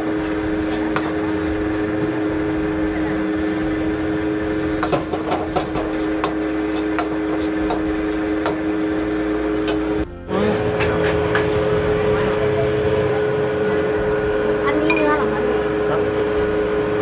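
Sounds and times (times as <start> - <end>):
steady mechanical hum: 0.0 - 17.0
metal ladle scraping wok: 4.2 - 8.7.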